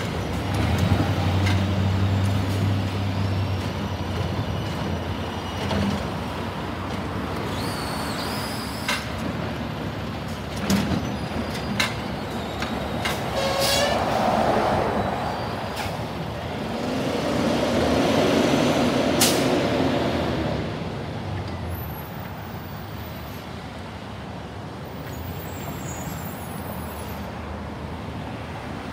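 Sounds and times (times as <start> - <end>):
air brakes hissing: 7.5 - 9.1, 11.8 - 14.4.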